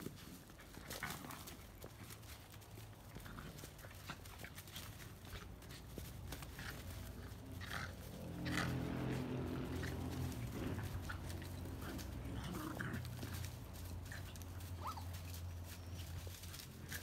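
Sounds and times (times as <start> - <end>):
paws scuffling on dry ground: 0.0 - 17.0
puppies yipping: 2.7 - 17.0.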